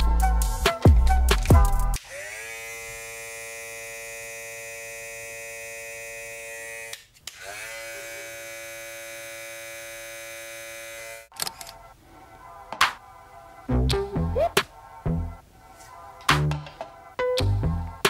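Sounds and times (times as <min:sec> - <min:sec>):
cordless hair clipper humming: 0:02.0 - 0:11.3.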